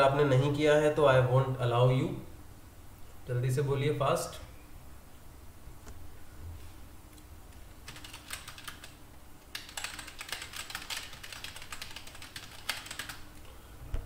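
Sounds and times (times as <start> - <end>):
computer keyboard typing: 7.5 - 13.4.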